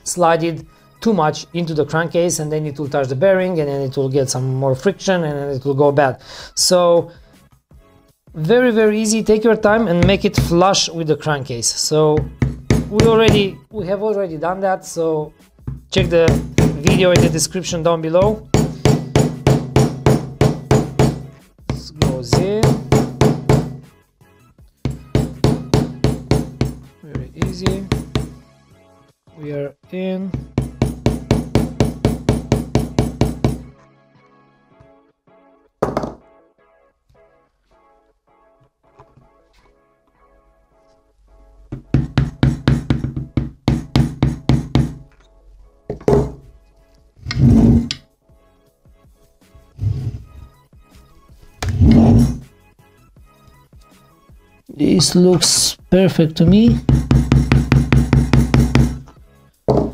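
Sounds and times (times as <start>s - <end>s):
hammer tapping on plastic pipe: 10.0s - 10.6s, 12.2s - 13.6s, 15.7s - 17.5s, 18.2s - 23.9s, 24.8s - 28.4s, 30.4s - 33.7s, 41.7s - 45.0s, 45.9s - 46.4s, 56.6s - 59.9s.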